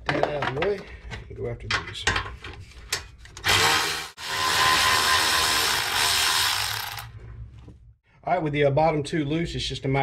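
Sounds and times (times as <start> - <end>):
electric ratchet running: 3.4 - 7.2.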